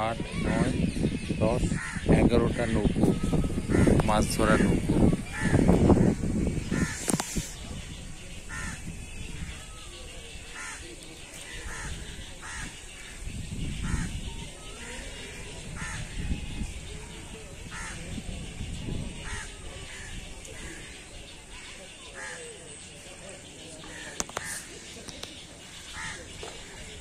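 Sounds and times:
crows cawing: 0:01.7 - 0:07.2, 0:08.5 - 0:08.9, 0:10.6 - 0:10.9, 0:11.5 - 0:13.1, 0:17.7 - 0:18.0, 0:22.1 - 0:22.4, 0:23.8 - 0:24.7, 0:25.8 - 0:26.8.

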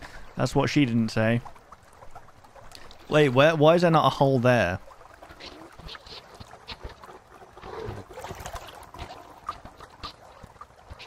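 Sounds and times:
soft echoing splashes: 0:00.0 - 0:11.0
water sloshing from wading: 0:00.0 - 0:11.0.

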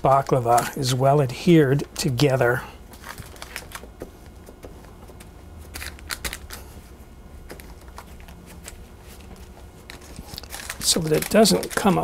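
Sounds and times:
pastry dough and paper crinkling: 0:07.5 - 0:12.0.

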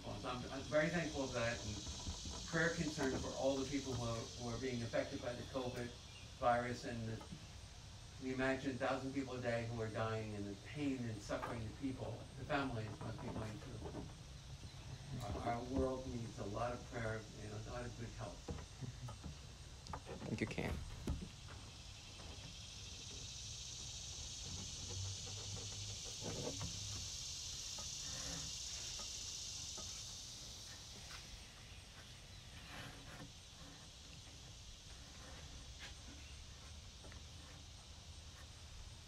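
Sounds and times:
high-pitched insect buzz: 0:00.0 - 0:12.8, 0:13.6 - 0:39.0
faint low hum: 0:00.0 - 0:39.0.

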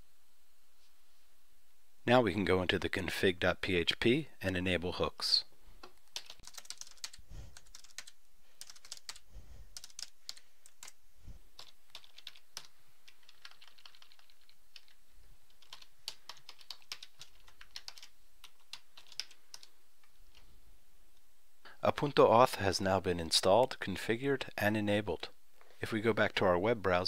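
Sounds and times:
keyboard typing: 0:05.8 - 0:19.7.

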